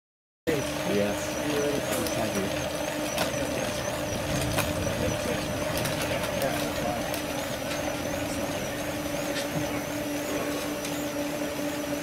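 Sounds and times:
bicycle trainers whirring: 0.5 - 12.0.

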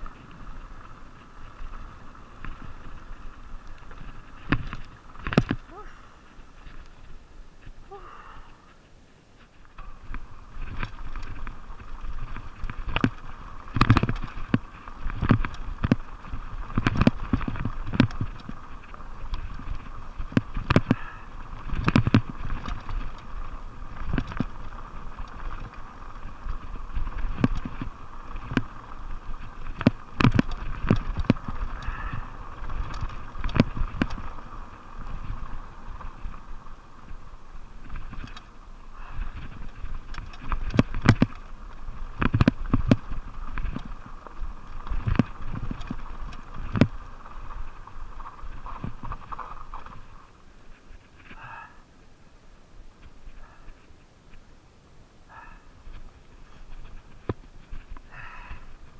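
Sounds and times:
tyres rumbling on dirt: 0.0 - 7.9, 9.6 - 51.6
wind: 0.0 - 58.9
bike knocks and clatter: 9.8 - 25.9, 26.5 - 34.4, 39.3 - 41.4.

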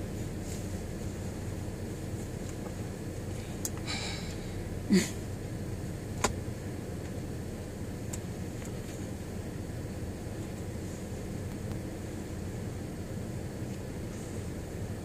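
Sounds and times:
car cabin hum: 0.0 - 15.0.

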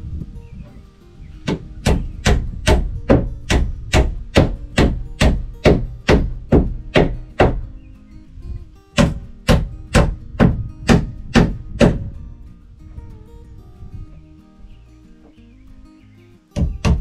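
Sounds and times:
hammer driving nails into wood: 1.5 - 7.6, 9.0 - 12.0.

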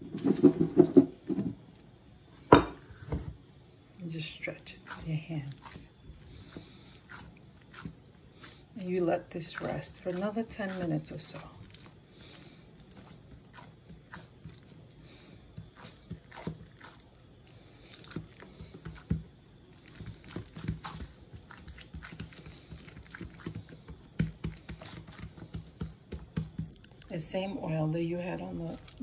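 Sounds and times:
hands patting soft dough: 4.5 - 29.0
plastic wrap crinkling: 4.9 - 19.1, 19.7 - 25.5, 28.3 - 29.0.

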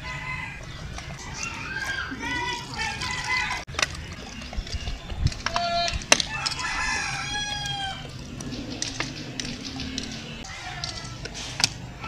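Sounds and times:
rooster crowing: 0.0 - 2.1, 6.2 - 8.2.

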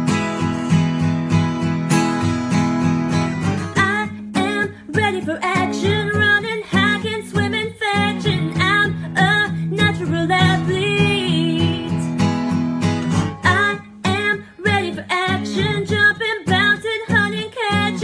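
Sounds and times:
acoustic guitar strumming: 0.0 - 18.0
woman singing: 3.8 - 12.2, 13.4 - 18.0.

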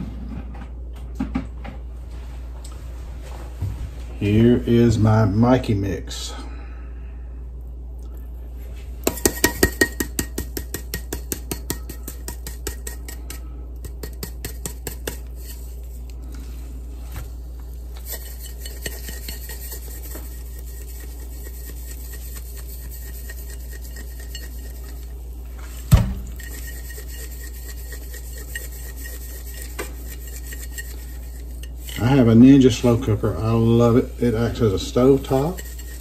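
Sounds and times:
seasoning shaker rattling: 9.0 - 16.1, 17.3 - 36.0
loud thump: 25.9 - 26.3.

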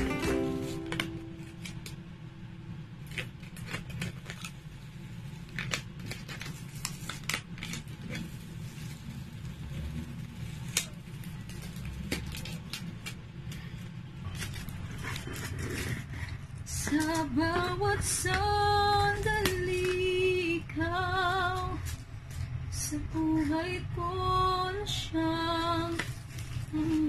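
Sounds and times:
steady low hum: 0.0 - 27.0
sharp clicks and crackles: 3.0 - 20.2
packaging rustling and crinkling: 3.0 - 20.5, 25.6 - 27.0.

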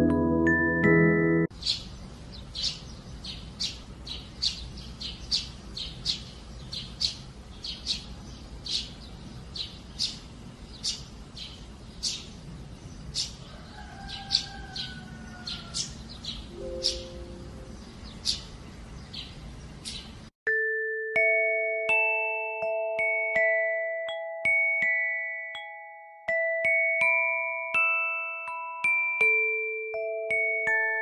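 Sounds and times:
sparrows chirping: 1.5 - 20.3.

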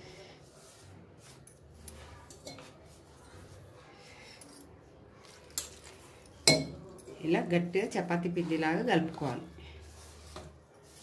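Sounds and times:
hands rubbing flour in a plate: 0.1 - 4.2, 7.8 - 11.0
steel tumbler clinking on plate: 6.4 - 7.0.

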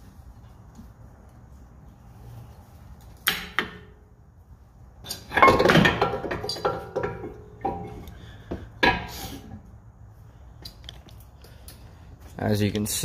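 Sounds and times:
metal clinking and scraping: 5.0 - 8.2.

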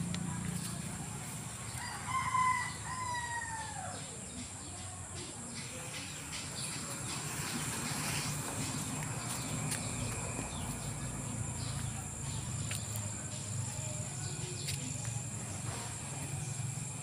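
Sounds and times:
rooster crowing: 1.7 - 4.1.

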